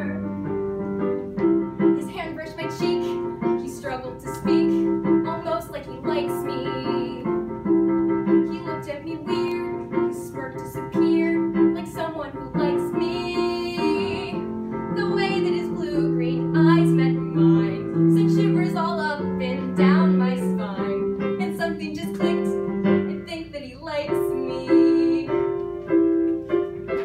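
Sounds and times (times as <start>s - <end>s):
piano accompaniment: 0.0s - 27.0s
girl singing: 2.1s - 7.3s, 8.5s - 14.4s, 23.2s - 25.4s.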